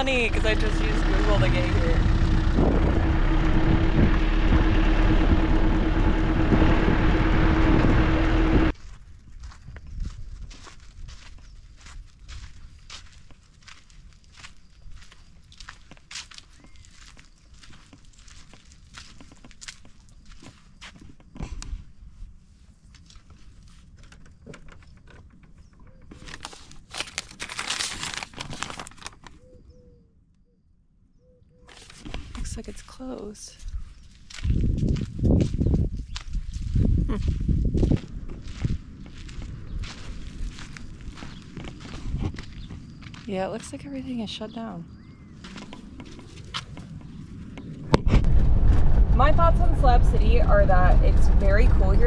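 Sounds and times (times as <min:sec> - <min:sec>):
truck engine drone: 0:00.0 - 0:08.8, 0:48.2 - 0:52.0
road and wind noise: 0:00.0 - 0:29.4, 0:31.6 - 0:52.0
paper crinkling and rustling: 0:26.1 - 0:29.4
footsteps: 0:31.7 - 0:43.8.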